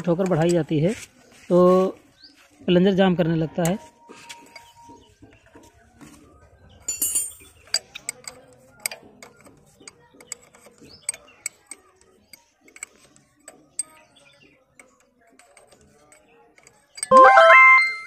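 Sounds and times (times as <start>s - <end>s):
spanners clinking on metal: 6.8s - 11.8s
high-pitched chirp: 17.1s - 18.0s.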